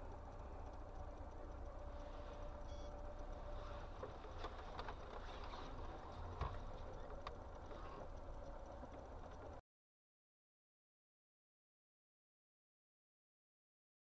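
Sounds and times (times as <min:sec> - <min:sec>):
car engine and tyres rumble: 0:00.0 - 0:09.6
faint clicks and knocks: 0:00.0 - 0:09.6.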